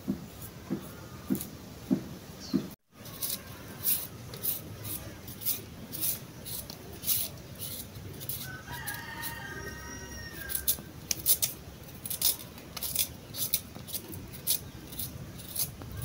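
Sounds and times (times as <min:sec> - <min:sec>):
knife scraping peel: 0:03.0 - 0:16.0
rooster crowing: 0:08.4 - 0:10.9.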